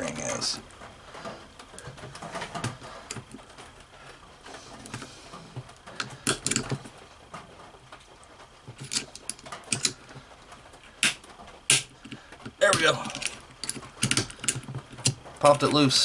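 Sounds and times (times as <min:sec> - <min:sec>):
steel tools clicking and scraping: 0:08.8 - 0:10.0.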